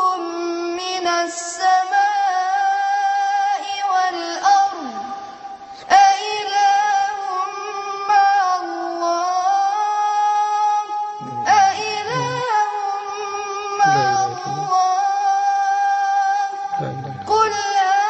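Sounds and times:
boy chanting: 5.8s - 9.8s, 11.2s - 15.6s, 16.8s - 18.0s.

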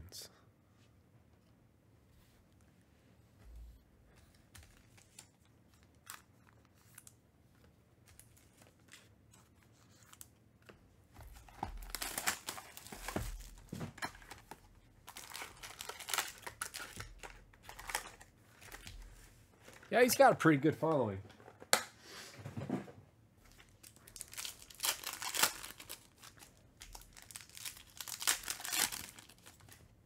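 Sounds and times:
plastic and foil crinkling and tearing: 4.5s - 19.9s, 23.5s - 29.9s.

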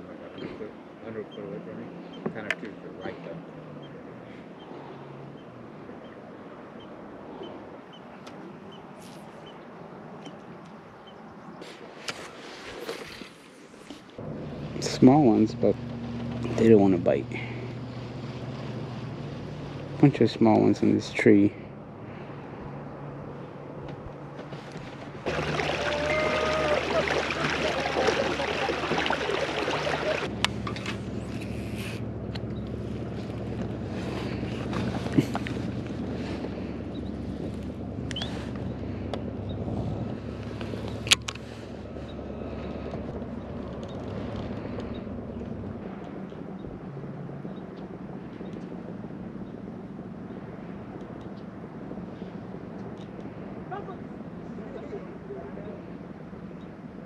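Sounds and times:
wind: 0.0s - 57.0s
water noise: 4.5s - 21.4s, 22.0s - 57.0s
low motor hum: 14.2s - 57.0s.

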